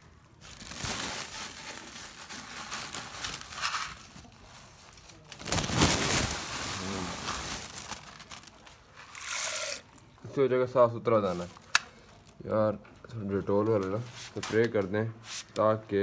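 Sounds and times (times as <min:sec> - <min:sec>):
plastic sack rustling: 0:00.0 - 0:09.8.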